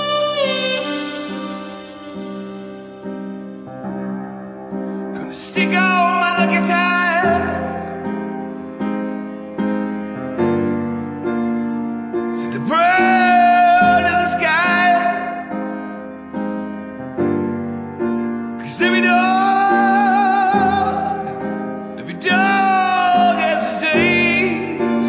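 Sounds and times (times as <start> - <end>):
person singing long wavering notes: 0.0 - 3.1.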